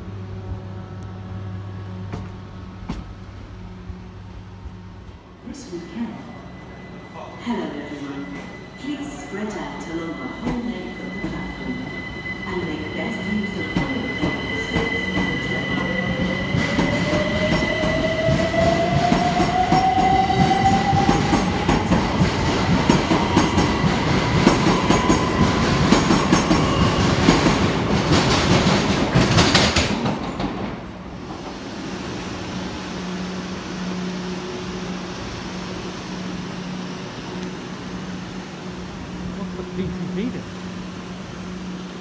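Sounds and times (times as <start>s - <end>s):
train wheels clattering and squealing: 7.9s - 31.6s.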